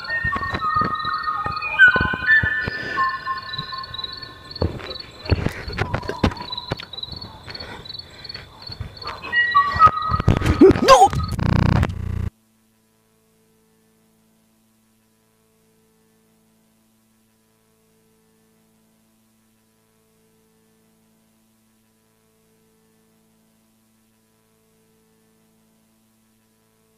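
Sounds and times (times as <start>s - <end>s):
faint electrical hum: 9.8s - 26.9s.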